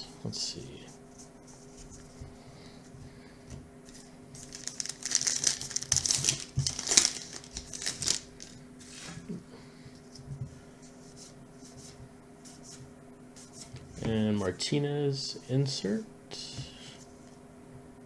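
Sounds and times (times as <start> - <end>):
cards rustling and clicking: 3.9 - 8.6
wrapper tearing and crinkling: 4.4 - 8.6.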